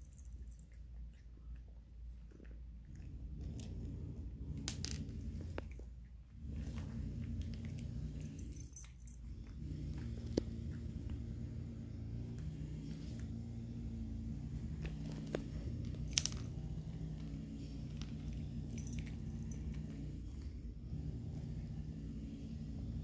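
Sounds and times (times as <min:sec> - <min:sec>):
low hum: 0:00.0 - 0:23.0
cat crunching dry food: 0:02.2 - 0:13.3, 0:14.0 - 0:20.5.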